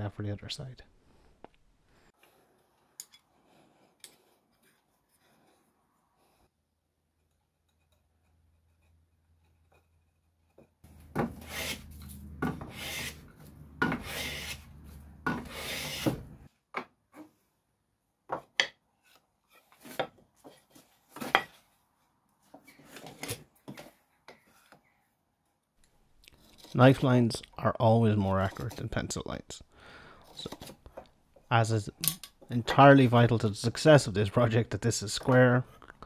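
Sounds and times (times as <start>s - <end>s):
hand plane shaving wood: 11.0s - 16.3s.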